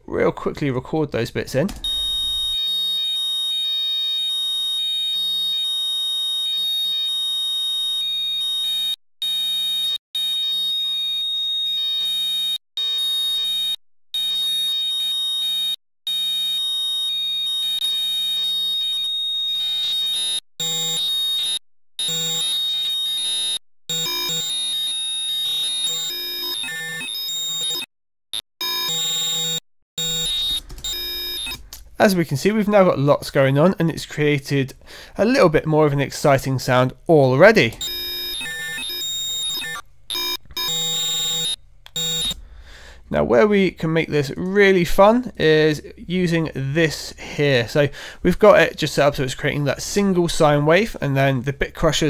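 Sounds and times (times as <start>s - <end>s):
high-pitched digital buzzing tone: 28.6s - 31.6s, 37.8s - 42.4s.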